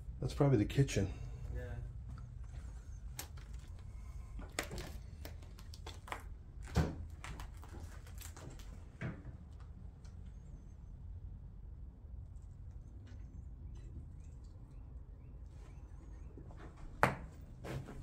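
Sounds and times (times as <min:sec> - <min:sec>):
people moving about a room: 0:01.2 - 0:09.8, 0:15.5 - 0:18.0.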